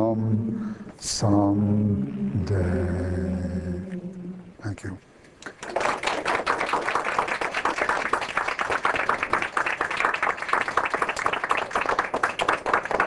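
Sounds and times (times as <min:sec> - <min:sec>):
students applauding: 0:05.5 - 0:13.0.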